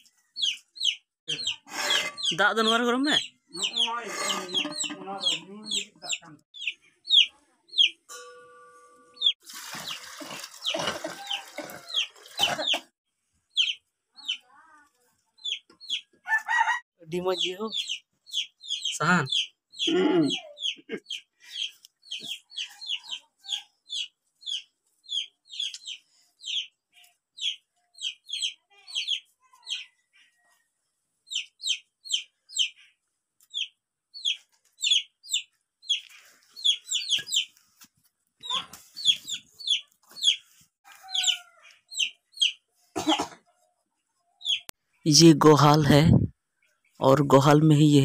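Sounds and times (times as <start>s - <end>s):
chicks peeping: 0.4s - 8.0s, 13.5s - 14.4s, 15.4s - 16.1s, 17.4s - 29.9s, 31.3s - 37.6s, 38.4s - 42.6s, 44.4s - 44.7s.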